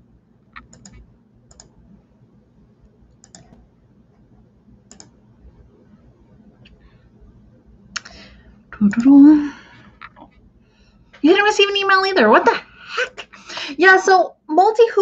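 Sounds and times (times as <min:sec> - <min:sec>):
computer keys clicking: 0:00.5 - 0:01.8, 0:03.1 - 0:03.6, 0:04.9 - 0:05.2.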